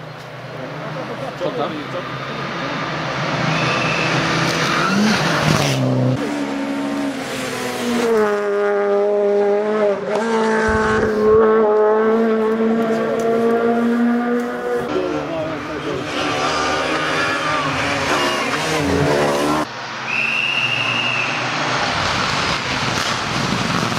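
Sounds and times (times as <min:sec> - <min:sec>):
rally car engine revving: 0:00.8 - 0:19.7.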